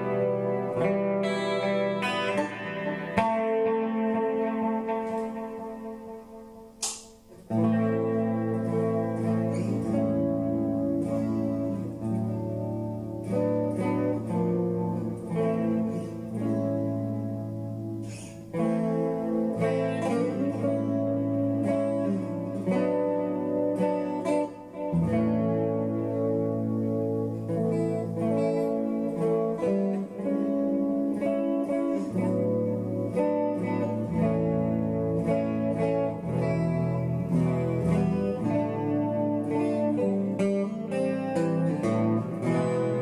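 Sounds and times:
instrumental background music: 0.0 - 43.0.

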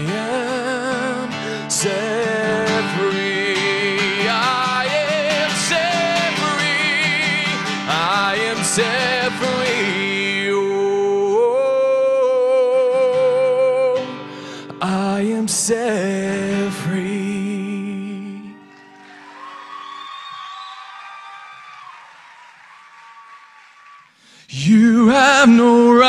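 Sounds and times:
strummed acoustic guitar: 0.0 - 18.6
person singing: 0.0 - 18.9, 24.4 - 26.0.

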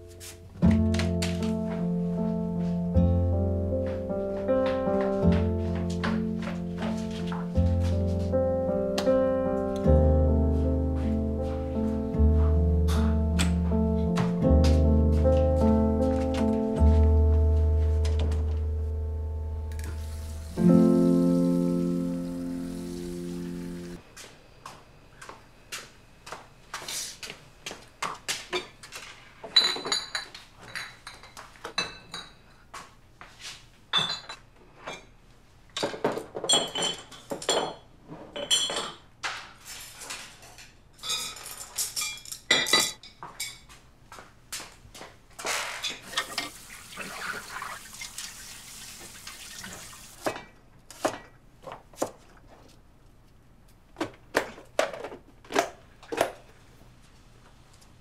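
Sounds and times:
running water: 19.6 - 24.0, 46.0 - 50.3
dishes and glasses clattering: 29.5 - 32.4, 33.9 - 35.1, 35.8 - 39.0, 41.0 - 43.7.

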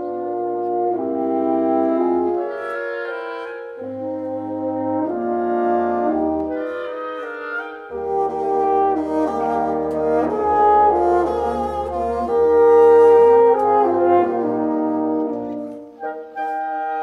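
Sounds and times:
horns: 0.0 - 17.0
wind ensemble playing a minuet: 0.0 - 17.0.

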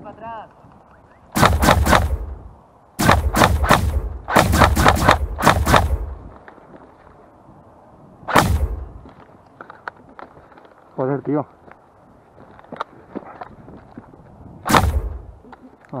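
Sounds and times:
airsoft rifle shots: 1.4 - 2.4, 3.0 - 6.3, 8.3 - 9.0, 14.7 - 15.3
rifle gunshots: 1.4 - 2.4, 3.0 - 6.2, 8.3 - 9.0, 14.7 - 15.3.

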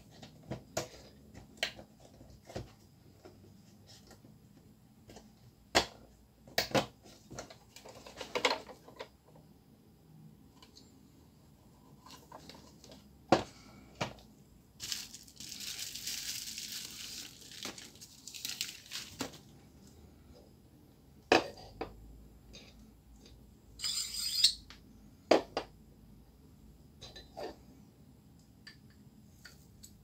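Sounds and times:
rustling: 14.8 - 19.5.

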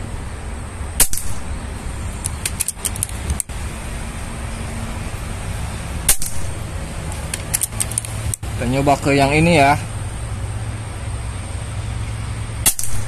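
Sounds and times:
steady low rumble: 0.0 - 13.0
air rifle shots: 1.0 - 1.5, 6.1 - 6.6, 12.6 - 13.0.

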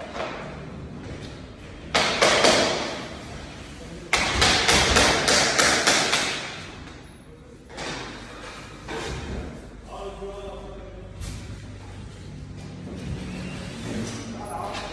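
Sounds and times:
hammer knocking echoing in hall: 1.8 - 3.1, 4.1 - 6.8.

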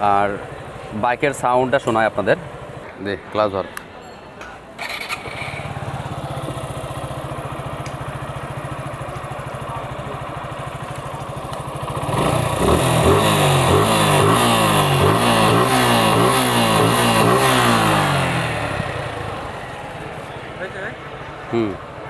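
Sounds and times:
motorcycle engine idling: 0.0 - 3.6, 4.8 - 22.0
motorcycle engine revving: 4.8 - 21.4.

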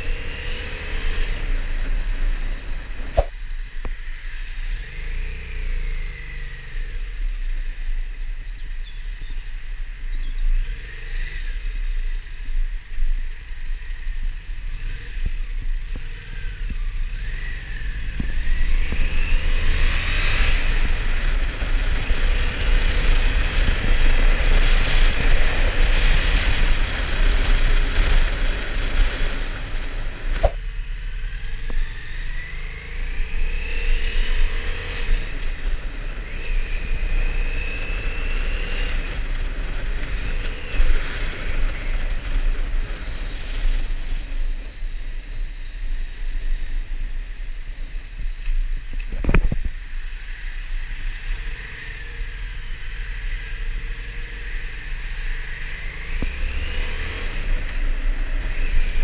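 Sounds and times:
wind and road noise: 0.0 - 59.0
motorcycle engine revving: 10.2 - 45.0, 49.6 - 59.0.

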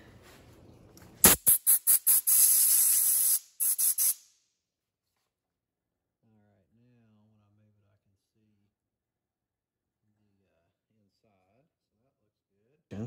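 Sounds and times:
air nozzle hissing blasts: 1.2 - 4.2.

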